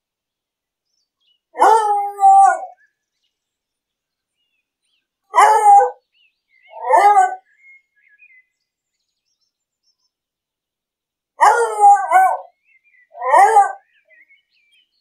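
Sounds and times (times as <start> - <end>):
dog barking: 1.6 - 2.7, 5.3 - 6.0, 6.8 - 7.4, 11.4 - 12.5, 13.2 - 13.8.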